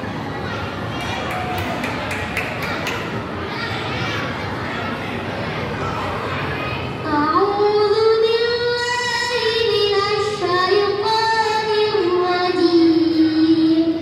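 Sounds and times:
child singing: 7.0 - 14.0.

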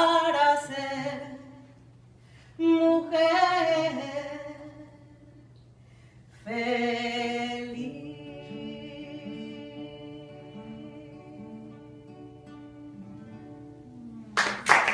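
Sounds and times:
woman singing: 0.0 - 1.8, 2.6 - 5.4, 6.4 - 13.4
acoustic guitar chord ringing: 7.8 - 14.6.

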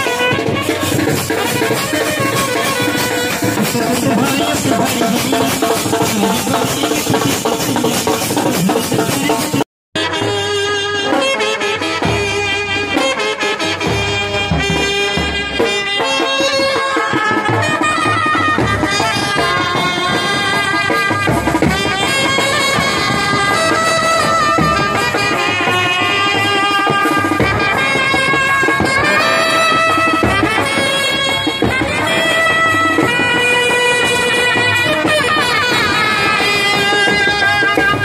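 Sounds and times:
bass drum beats: 0.0 - 9.6, 18.6 - 33.2
brass band horns melody: 0.0 - 38.0.

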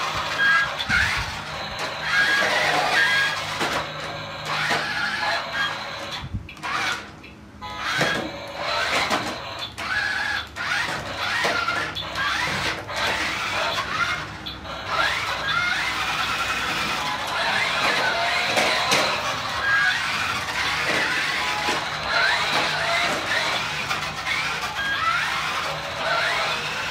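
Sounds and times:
electric motor whine: 0.0 - 26.9
toy speaker engine revving effects: 0.0 - 26.9.

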